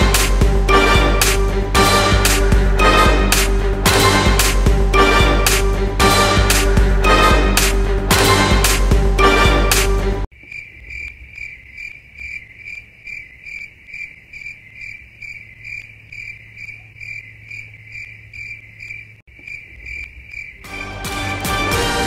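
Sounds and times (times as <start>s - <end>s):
crickets chirping: 10.3s - 20.7s.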